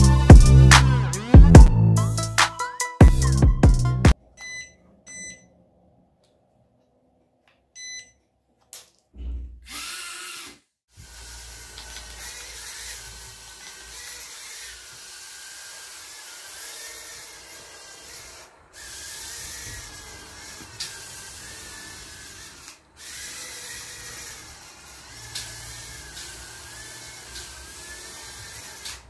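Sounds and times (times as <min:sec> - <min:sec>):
quadcopter motors whining: 0:09.6 - 0:29.0.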